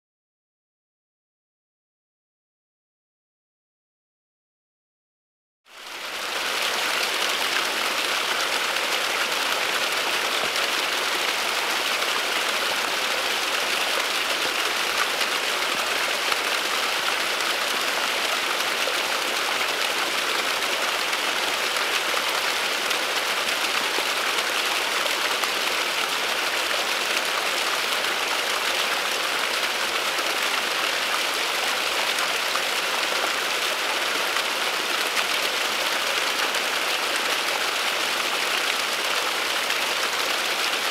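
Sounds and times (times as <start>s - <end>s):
waterfall splashing: 5.8s - 40.9s.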